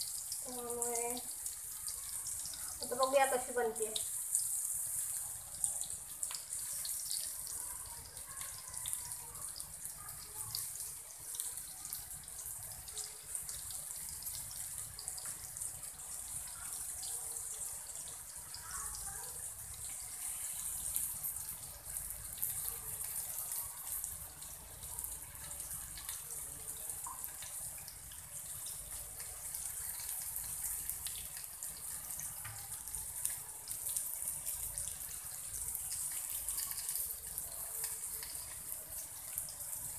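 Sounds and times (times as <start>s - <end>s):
fish frying in oil: 0.0s - 39.9s.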